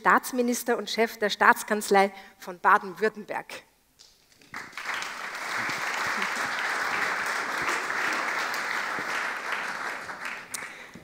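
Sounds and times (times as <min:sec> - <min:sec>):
audience applauding: 0:04.4 - 0:11.0.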